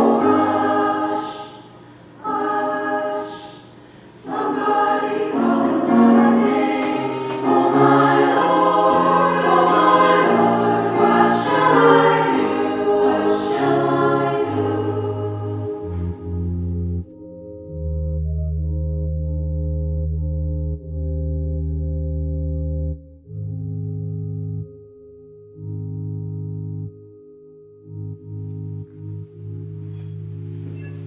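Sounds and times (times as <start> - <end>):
women's choir singing: 0.0 - 16.4.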